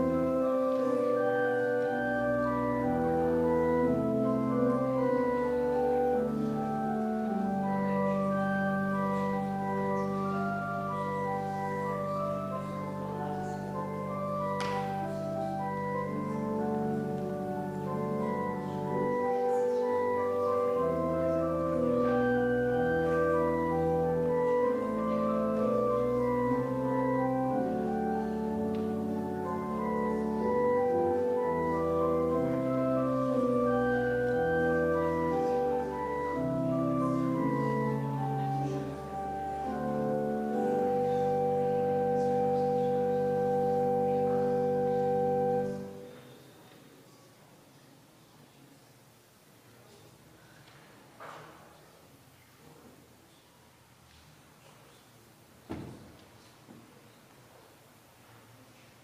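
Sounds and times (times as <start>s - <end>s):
church organ chords: 0.0s - 46.6s.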